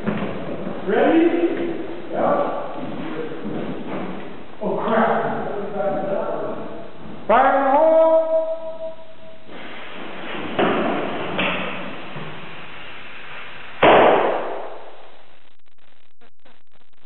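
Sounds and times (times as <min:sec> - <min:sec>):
grenade bang: 0:13.8 - 0:14.9.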